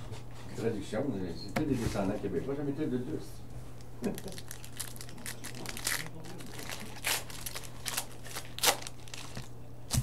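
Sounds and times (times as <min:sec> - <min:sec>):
wrapper crinkling: 0:04.0 - 0:10.0.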